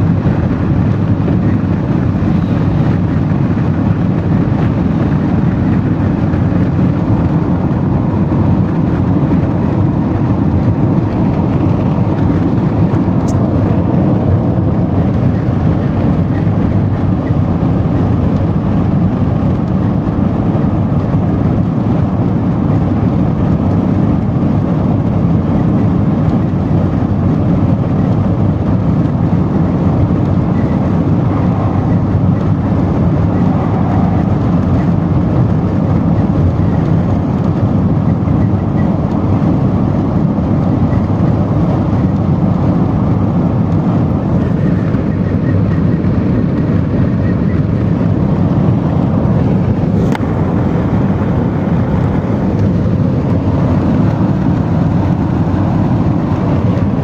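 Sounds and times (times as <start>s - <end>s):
jet engine cabin rush: 0.0s - 57.0s.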